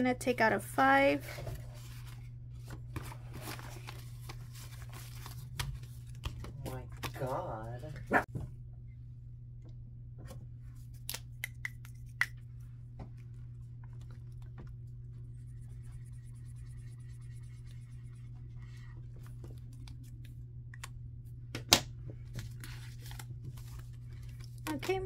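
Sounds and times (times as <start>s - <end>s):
steady low hum: 0.0s - 25.0s
marker scratching on paper: 15.3s - 18.9s.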